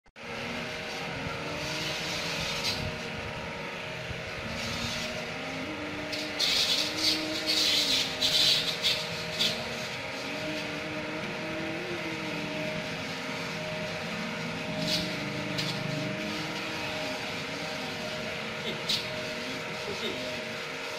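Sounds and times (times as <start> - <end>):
small electric motor running: 0.2 - 20.9
hissing water spray: 4.5 - 10.8, 12.8 - 20.5.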